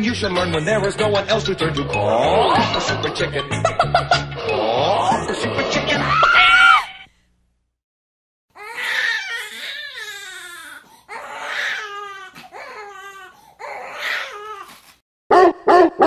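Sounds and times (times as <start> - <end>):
dog whining cries: 13.6 - 14.8
dog yelping: 15.3 - 16.0.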